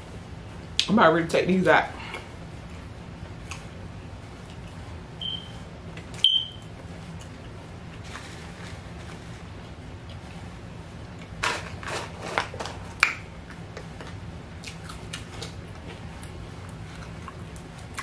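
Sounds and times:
steady low hum: 0:00.0 - 0:18.0
fries crinkling and crunching: 0:05.9 - 0:18.0
faint chewing clicks: 0:13.5 - 0:18.0.

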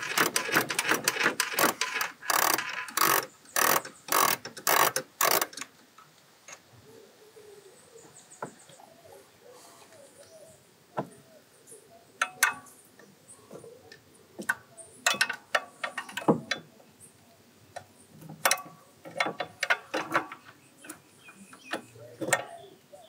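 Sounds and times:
ratchet wrench clicking: 0:00.0 - 0:05.7.

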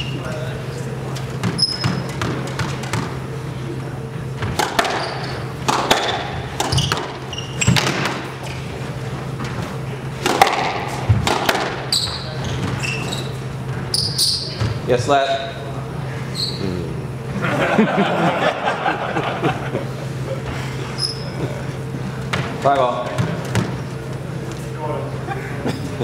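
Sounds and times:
shoes squeaking on wooden floor: 0:01.4 - 0:02.7, 0:04.8 - 0:05.5, 0:06.6 - 0:08.8, 0:11.8 - 0:14.9
squash ball smacking: 0:04.4 - 0:08.4, 0:10.2 - 0:11.9.

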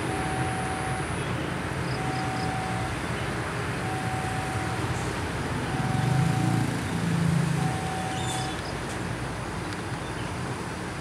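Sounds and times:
level-crossing warning tone: 0:00.0 - 0:08.6
diesel train engine drone: 0:00.0 - 0:11.0.

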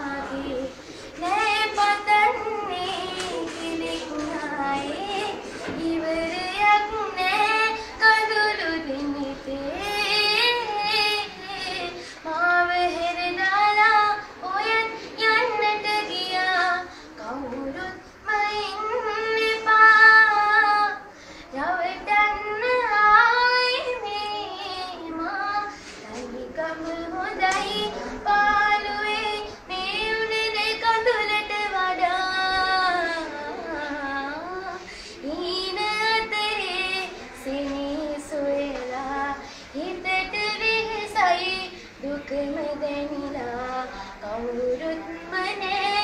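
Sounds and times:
breaths: 0:00.8 - 0:01.2, 0:12.0 - 0:12.3, 0:16.9 - 0:17.2, 0:21.1 - 0:21.6, 0:25.7 - 0:26.0, 0:34.8 - 0:35.3, 0:39.4 - 0:39.8.

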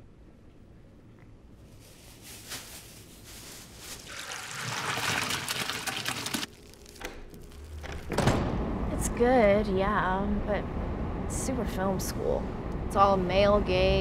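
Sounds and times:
water and pasta pouring from pot: 0:04.0 - 0:06.5.

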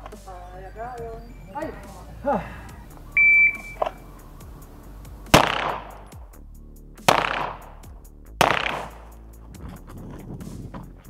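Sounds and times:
short high beep: 0:03.1 - 0:04.0
pistol shots with echo: 0:05.3 - 0:06.1, 0:07.1 - 0:07.8, 0:08.4 - 0:09.2.

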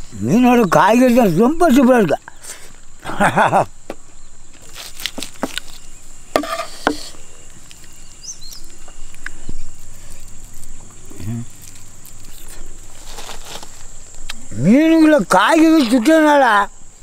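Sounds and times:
high-pitched insect drone: 0:00.0 - 0:17.0
short rustles: 0:09.5 - 0:14.2
person speaking: 0:14.5 - 0:16.7.

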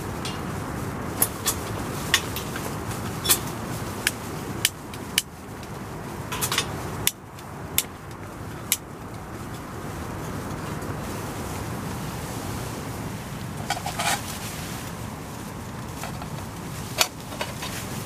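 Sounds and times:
steady low rumble: 0:00.0 - 0:18.0
metallic clicks and clinks: 0:06.3 - 0:07.9.

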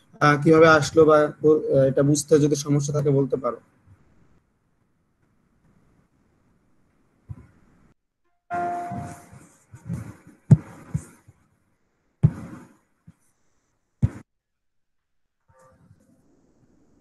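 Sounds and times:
notification chime: 0:08.5 - 0:09.2.

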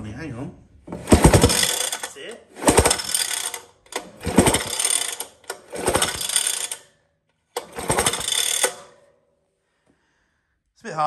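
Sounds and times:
pull-cord starter whirring and clicking: 0:00.9 - 0:06.9, 0:07.5 - 0:09.1.

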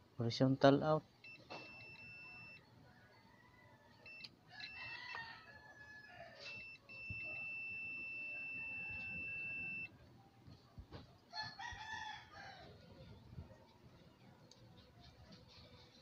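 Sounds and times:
multimeter continuity beep: 0:01.2 - 0:02.6, 0:04.1 - 0:05.2, 0:06.4 - 0:09.9.

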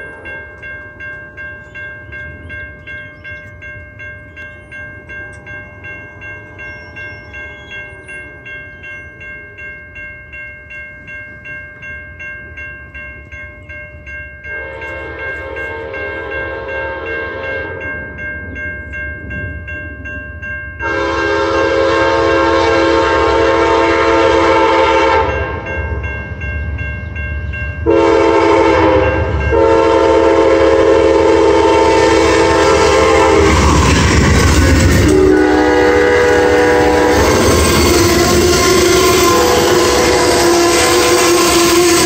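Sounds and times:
train chime horn blasts: 0:00.0 - 0:03.6, 0:14.4 - 0:18.2, 0:20.8 - 0:26.1, 0:27.8 - 0:42.0
railroad crossing bell dinging: 0:00.0 - 0:42.0
train rumble and wheel clatter: 0:00.0 - 0:42.0.

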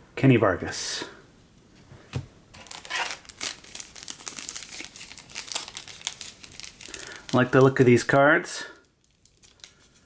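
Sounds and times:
foil wrapper crinkling: 0:02.6 - 0:08.1, 0:08.8 - 0:10.0.

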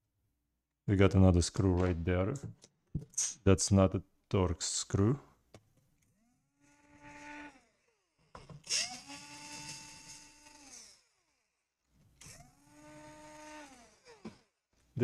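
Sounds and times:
electric drill motor whine: 0:06.2 - 0:11.1, 0:12.4 - 0:14.2.

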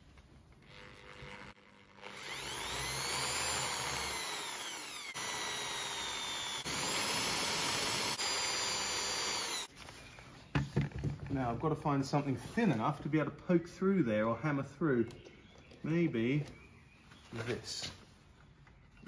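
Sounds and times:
electric drill drilling metal: 0:00.6 - 0:09.7.

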